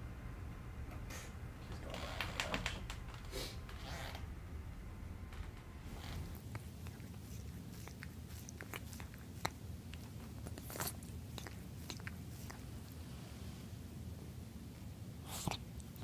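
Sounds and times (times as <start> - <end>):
cat mouth clicks and smacks: 6.4 - 13.0, 15.3 - 16.0.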